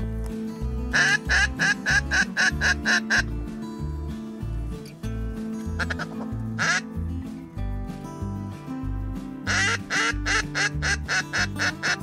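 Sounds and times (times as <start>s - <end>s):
background music with steady beat: 0.0s - 12.0s
duck quacking: 0.9s - 3.3s, 5.8s - 6.9s, 9.5s - 12.0s.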